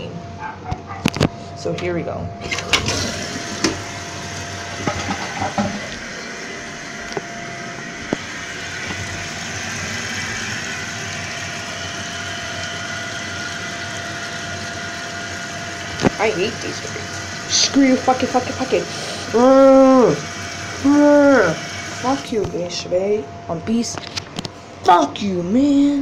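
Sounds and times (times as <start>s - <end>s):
toilet tank refilling: 2.4s - 22.5s.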